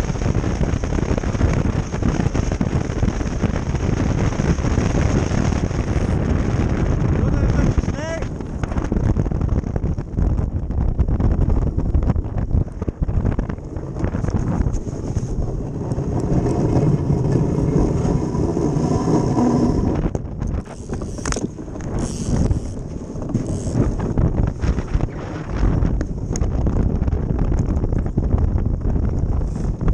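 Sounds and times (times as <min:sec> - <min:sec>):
wind buffeting microphone: 0:00.0 - 0:29.9
ice boat runners sliding on ice: 0:11.4 - 0:20.1.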